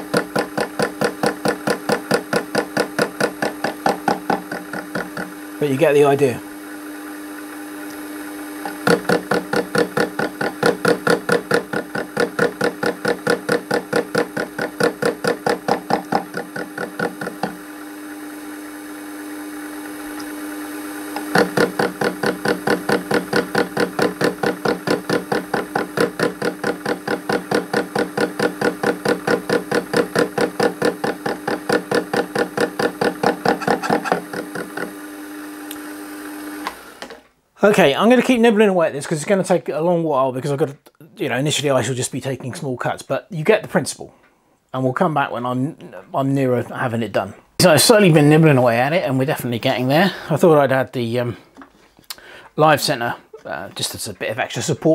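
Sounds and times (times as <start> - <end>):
cutting tool knocking: 0.0 - 5.6, 7.6 - 35.9
lathe humming: 0.0 - 37.2.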